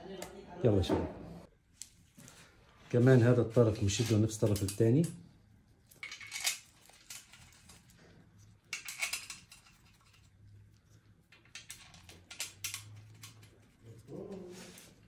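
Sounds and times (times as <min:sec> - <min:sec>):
metal bolts clicking and rattling: 0:05.9 - 0:07.9, 0:08.6 - 0:10.3, 0:11.3 - 0:13.6.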